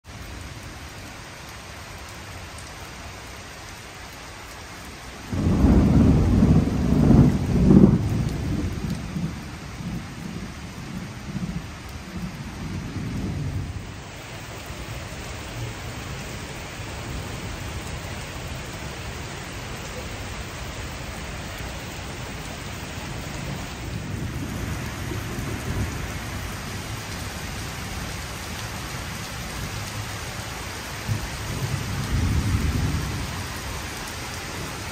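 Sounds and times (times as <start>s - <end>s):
rain on wet paving: 0.0s - 34.9s
thunder clap and rumbles: 5.3s - 14.0s, 22.4s - 30.4s, 31.0s - 34.0s.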